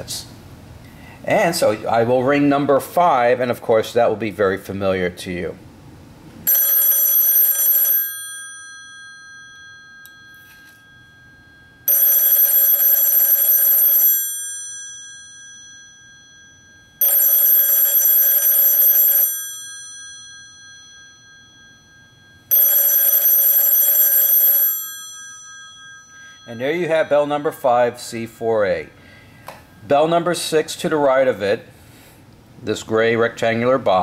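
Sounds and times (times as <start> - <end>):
telephone bell ringing: 6.4 - 28.0.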